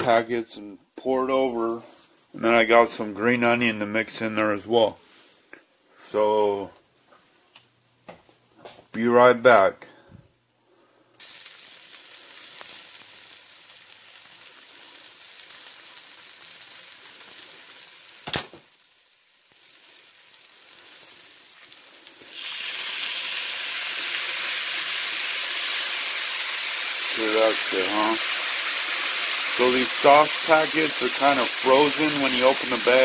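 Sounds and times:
chicken sizzling in oil: 0:11.2 - 0:33.0
sauce poured hissing on hot pan: 0:11.2 - 0:33.0.

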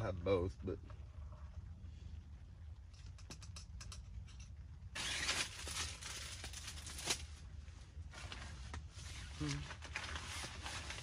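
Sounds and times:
plastic bag rustling: 0:05.0 - 0:11.0.

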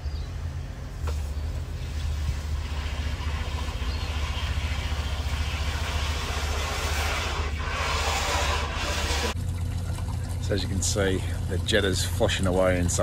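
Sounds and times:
drain jetter engine running: 0:00.8 - 0:13.0
water hissing and rushing: 0:01.1 - 0:09.4.

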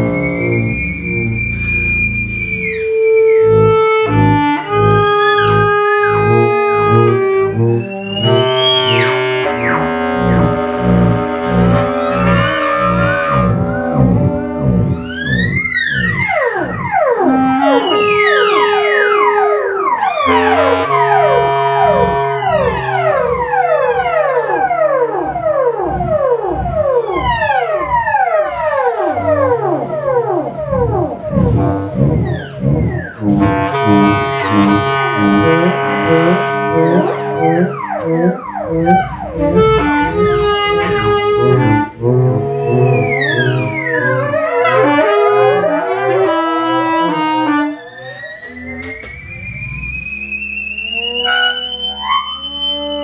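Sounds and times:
low held tones: 0:00.0 - 0:53.0
low repeating pulse: 0:00.0 - 0:53.0
theremin swooping downward: 0:00.0 - 0:53.0
low hum: 0:03.5 - 0:45.7.

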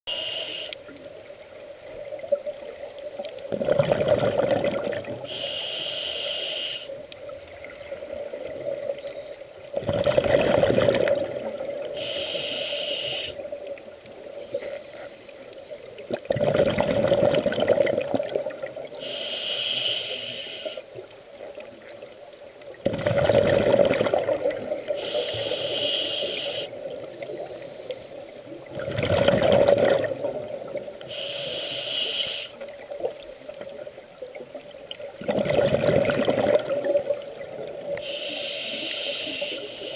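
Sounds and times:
regulator hissing inhale: 0:00.1 - 0:00.8, 0:05.2 - 0:07.0, 0:08.9 - 0:09.7, 0:11.8 - 0:13.5, 0:14.3 - 0:15.7, 0:18.9 - 0:20.9, 0:24.9 - 0:28.4, 0:31.0 - 0:32.7, 0:37.9 - 0:39.9
exhaled bubbles burbling: 0:03.5 - 0:05.3, 0:09.7 - 0:12.0, 0:16.0 - 0:19.0, 0:22.8 - 0:25.0, 0:28.6 - 0:31.0, 0:35.0 - 0:38.0.

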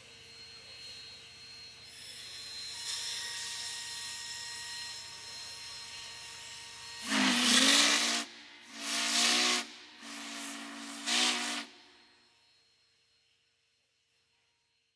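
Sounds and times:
steam whistle blast: 0:04.8 - 0:12.8.

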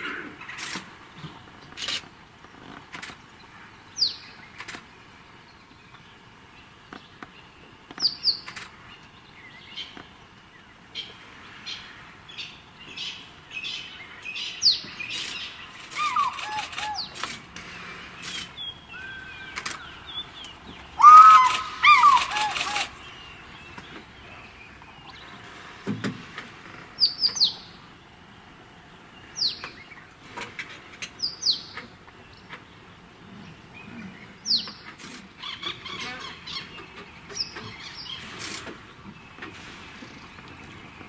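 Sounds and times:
birds chirping: 0:00.0 - 0:41.0
high downward bird whistles: 0:15.9 - 0:17.1, 0:21.0 - 0:23.0
low whistled bird notes: 0:15.9 - 0:17.1, 0:18.4 - 0:23.6.

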